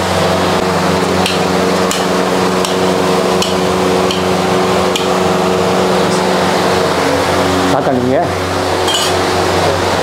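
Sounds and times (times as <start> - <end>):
kitchen hum: 0.0 - 10.0
metal spatula tapping griddle: 1.2 - 2.8, 3.4 - 4.3.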